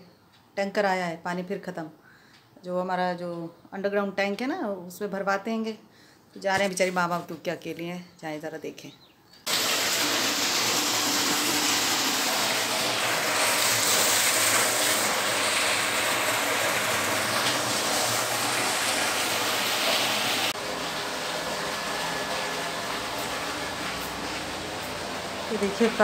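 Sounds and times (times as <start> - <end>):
pump running: 9.5 - 26.0
water pouring through a hose: 9.5 - 26.0.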